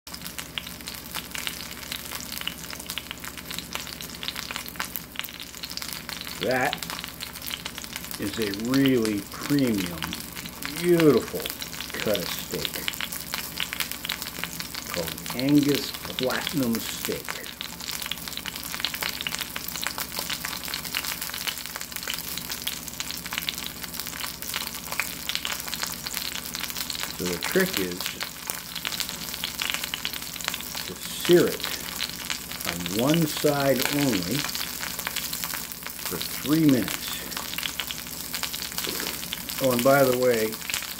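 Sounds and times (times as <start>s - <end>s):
steak sizzling in a skillet: 0.1s - 40.9s
fat spitting and crackling: 38.8s - 39.4s.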